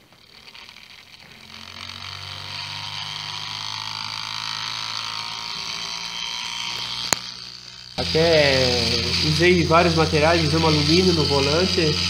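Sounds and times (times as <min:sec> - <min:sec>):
electric motor whirring: 0:00.0 - 0:12.0.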